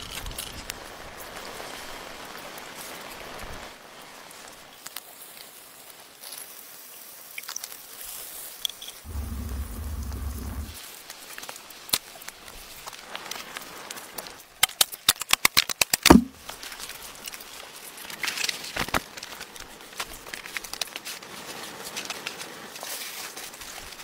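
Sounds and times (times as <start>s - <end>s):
campfire crackling and popping: 9.1s - 10.8s
heavy knock: 16.1s - 16.3s.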